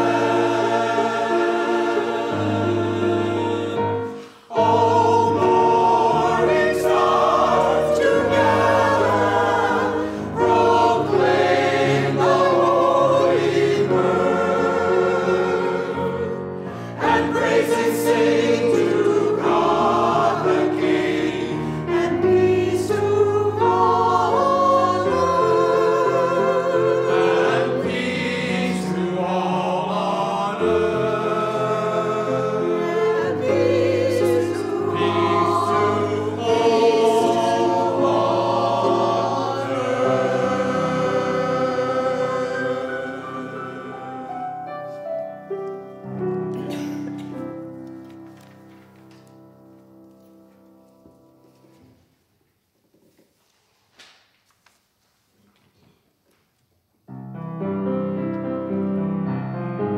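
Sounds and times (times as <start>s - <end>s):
mixed choir singing: 0.0s - 45.1s
piano: 0.0s - 53.3s, 57.0s - 59.9s.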